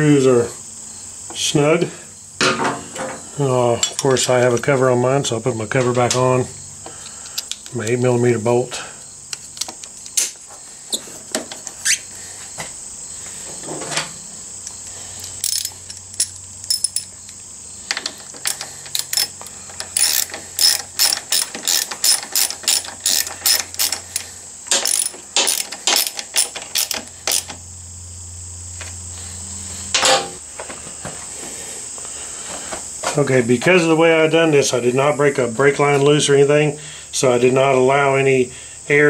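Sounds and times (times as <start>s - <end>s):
ratchet wrench clicking: 14.6s - 27.5s.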